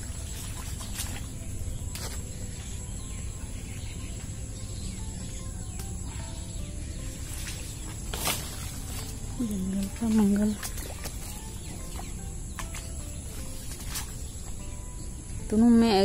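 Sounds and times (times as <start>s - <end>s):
insects chirring: 0.0s - 16.0s
plants clicking and rustling: 0.3s - 2.3s, 7.1s - 14.6s.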